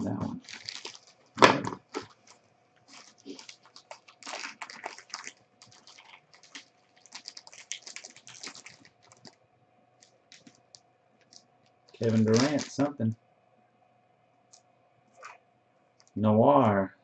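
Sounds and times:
plastic bag crinkling: 0.0s - 9.4s, 10.0s - 13.0s.

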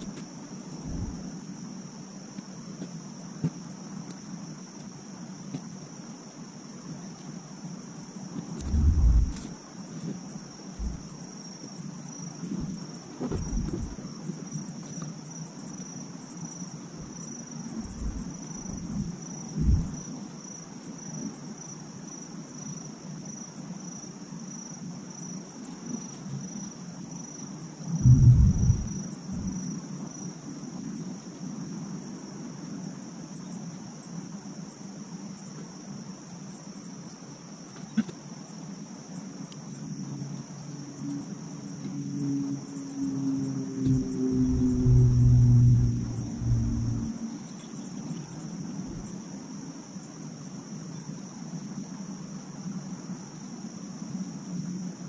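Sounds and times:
insects chirring: 0.0s - 55.0s
low rumbles: 0.8s - 1.2s, 8.6s - 9.5s, 10.8s - 11.1s, 12.6s - 14.0s, 17.8s - 20.0s, 27.9s - 29.6s, 43.9s - 47.2s.

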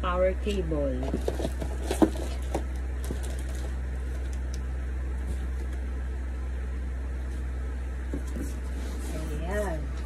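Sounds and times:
low hum: 0.0s - 10.0s
plastic wrapping rustling: 1.0s - 4.5s.

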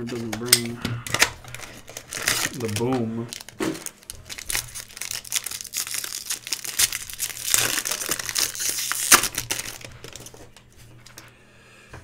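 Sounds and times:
foil wrapper crinkling: 0.0s - 11.2s.

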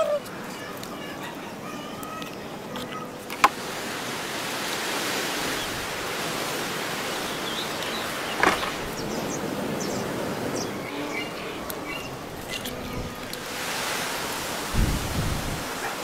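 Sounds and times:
steady rushing noise: 3.2s - 16.0s
cleaver chopping onto wooden board: 8.4s - 8.9s.

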